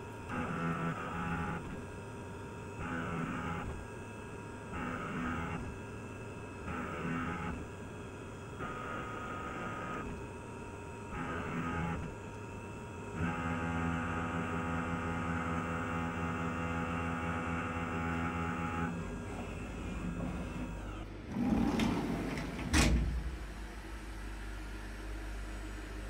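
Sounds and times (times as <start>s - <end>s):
milling machine cutting whine: 10.9s - 26.0s
spindle running: 19.2s - 23.5s.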